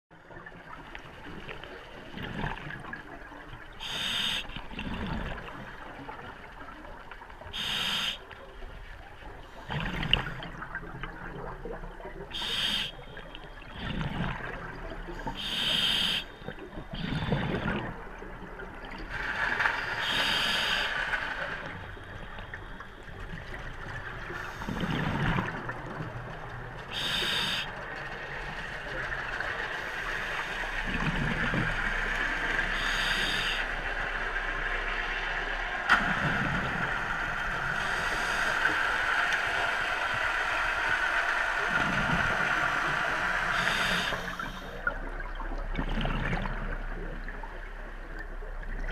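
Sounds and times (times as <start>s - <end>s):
steady underwater hiss: 0.4s - 26.1s, 26.8s - 48.9s
regulator hissing inhalations: 3.8s - 4.5s, 7.6s - 8.2s, 12.4s - 13.0s, 15.4s - 16.3s, 20.0s - 21.0s, 27.0s - 27.7s, 32.7s - 33.7s, 43.5s - 44.8s.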